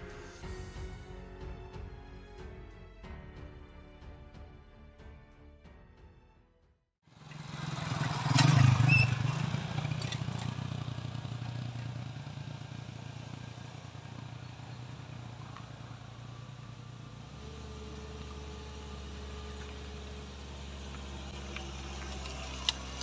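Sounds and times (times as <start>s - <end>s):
car engine hum: 7.1s - 23.0s
small motorcycle engine putter: 7.2s - 10.7s, 21.0s - 23.0s.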